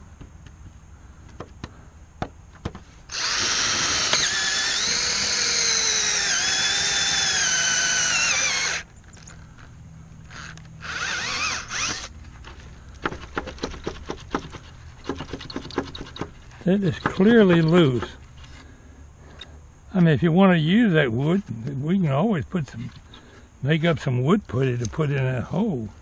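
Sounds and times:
cordless drill motor whine: 3.1s - 9.7s, 10.3s - 12.1s.

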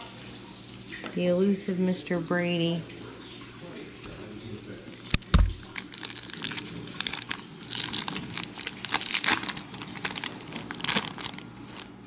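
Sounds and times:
foil wrapper crinkling and tearing: 4.8s - 12.0s
heavy thump: 5.2s - 5.6s.

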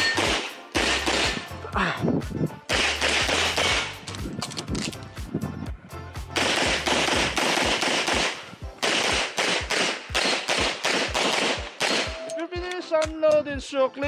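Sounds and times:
rapid pistol shots: 0.0s - 1.5s, 2.7s - 4.0s, 6.4s - 12.2s
background music: 0.0s - 14.0s.

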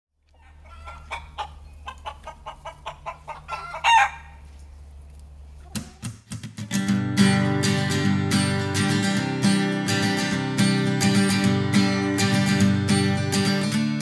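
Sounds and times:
hens clucking: 0.3s - 4.8s
hen squawk: 0.4s - 4.4s.

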